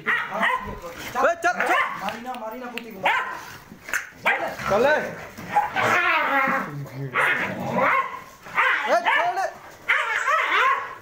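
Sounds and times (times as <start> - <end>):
dogs and jackal yelping: 0.0 - 0.8, 1.6 - 2.1, 3.0 - 4.8, 5.4 - 11.0.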